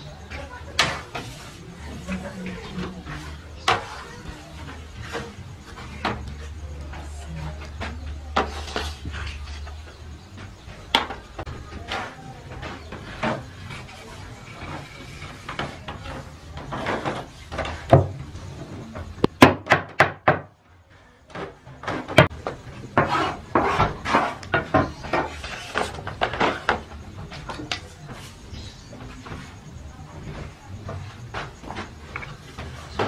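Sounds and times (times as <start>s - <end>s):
metal baking trays clattering: 0.0s - 19.2s, 21.4s - 29.6s.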